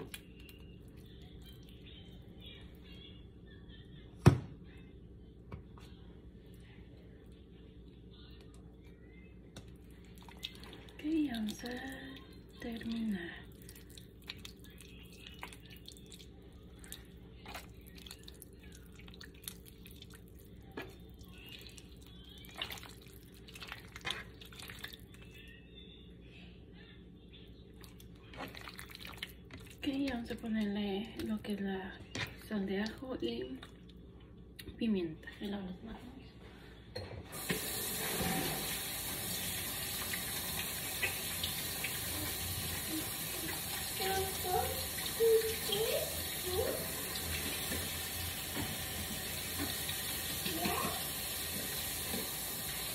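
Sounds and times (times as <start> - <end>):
faucet water running into sink: 37.4 - 52.9.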